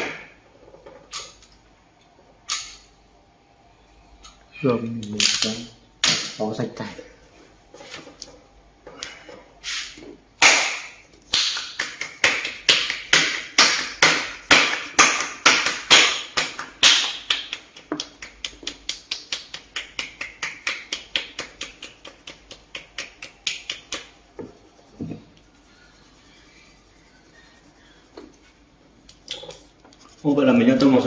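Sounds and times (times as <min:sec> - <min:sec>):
pencil scratching on paper: 0:23.7 - 0:28.6.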